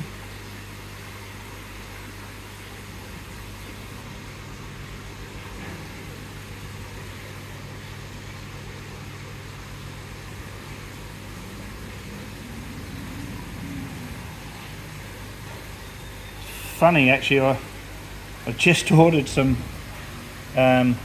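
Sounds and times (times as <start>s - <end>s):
low mechanical hum: 0.0s - 21.0s
faint hiss: 15.9s - 17.7s.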